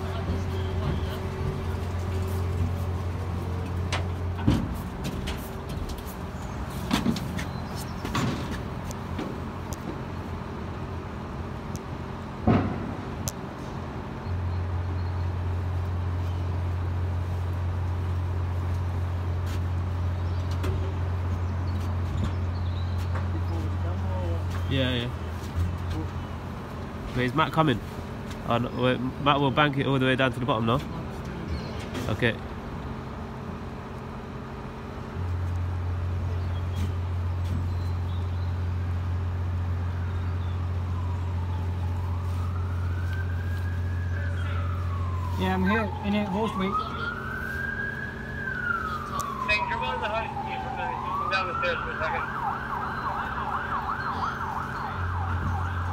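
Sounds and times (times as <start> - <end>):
distant siren wailing: 0.0 - 4.6, 39.1 - 55.9
crane engine droning: 0.0 - 55.9.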